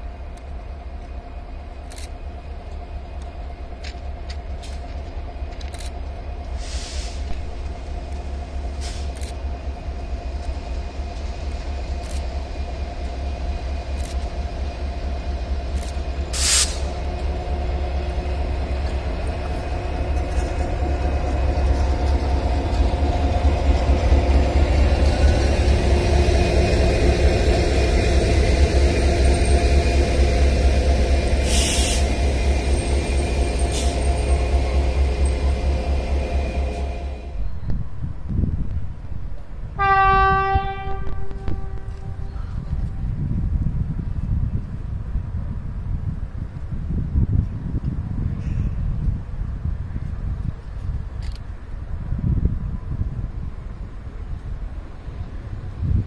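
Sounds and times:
diesel locomotive engine rumbling: 0.0 - 56.0
short hiss: 6.6 - 7.3, 16.4 - 17.0, 31.4 - 32.2.

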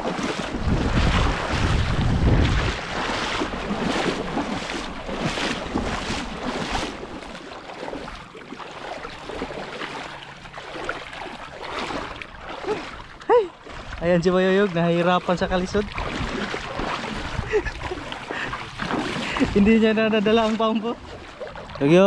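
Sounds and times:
wind buffeting microphone: 0.0 - 7.4, 13.8 - 22.0
wading steps splashing water: 0.0 - 22.0.

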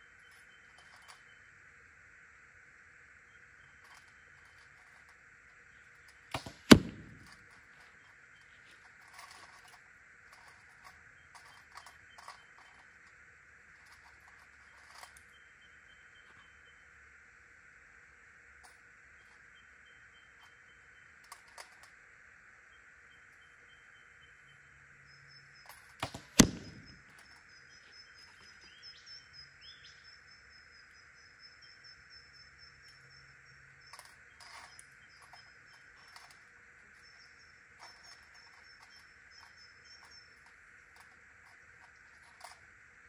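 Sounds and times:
bow shot release: 6.3 - 7.4, 26.0 - 27.0.

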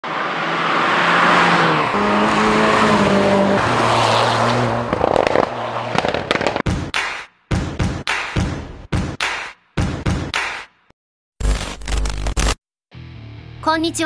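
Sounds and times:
car engine at speed: 0.0 - 6.6.

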